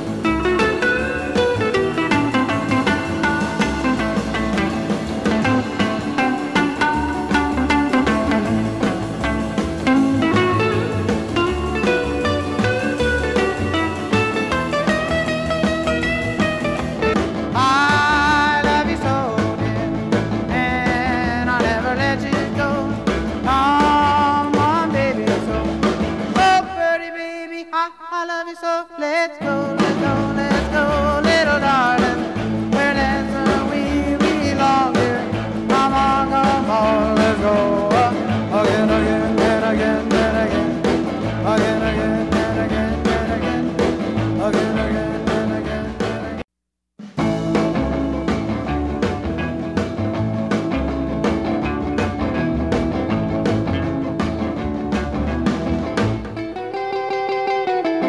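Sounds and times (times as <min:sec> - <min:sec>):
song with singing over a beat: 0:17.1 - 0:46.4.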